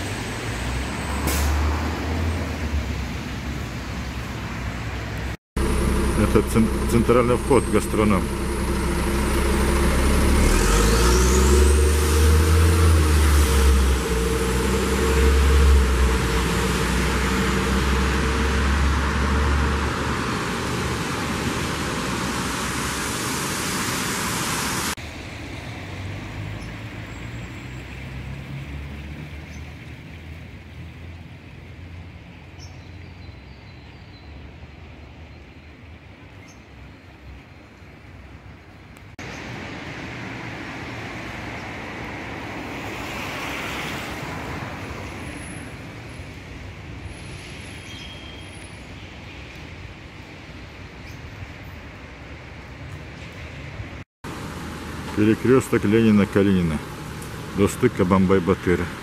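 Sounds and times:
distant traffic: 0.0 - 59.0
vehicle engine running: 5.6 - 25.0
tyre hiss on wet road: 11.6 - 25.6.

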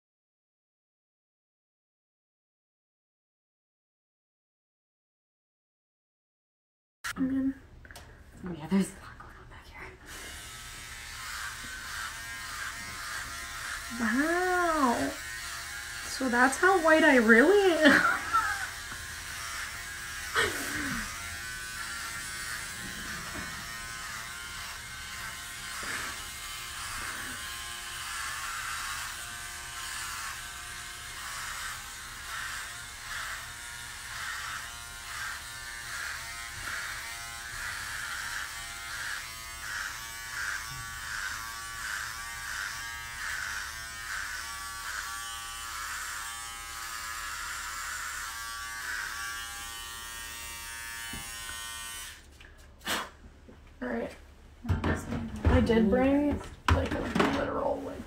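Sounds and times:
electric hair clippers buzzing: 10.1 - 52.3.

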